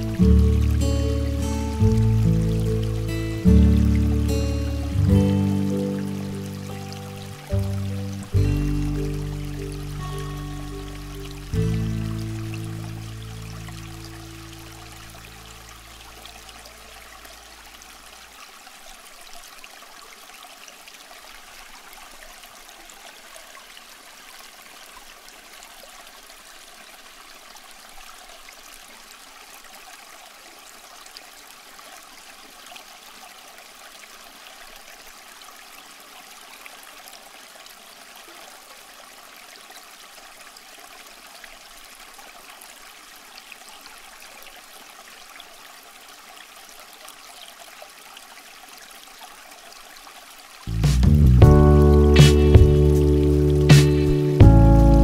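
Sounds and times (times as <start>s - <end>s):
running water trickling: 0.0s - 55.0s.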